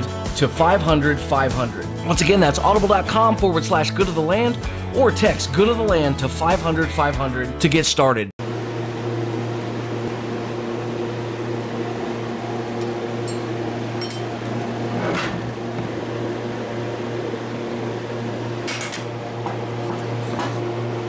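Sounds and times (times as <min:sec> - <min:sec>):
steady mechanical hum: 0:08.4 - 0:21.0.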